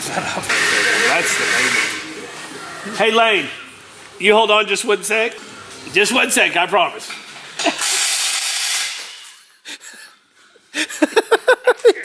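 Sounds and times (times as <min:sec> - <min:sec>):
loud steady hiss: 0:00.4 - 0:02.1, 0:07.6 - 0:09.3.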